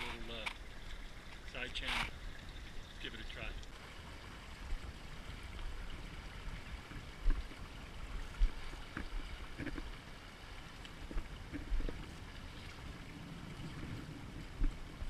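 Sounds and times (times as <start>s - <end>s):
river water lapping around raft: 0.0s - 15.0s
wind on microphone: 10.6s - 15.0s.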